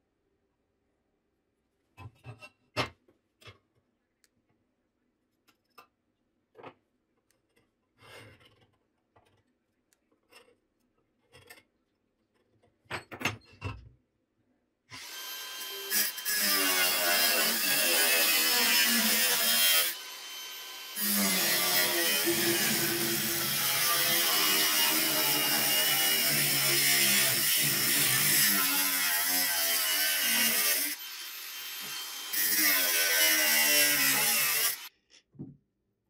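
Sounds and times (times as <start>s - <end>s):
angle grinder cutting steel: 15.0s - 34.9s.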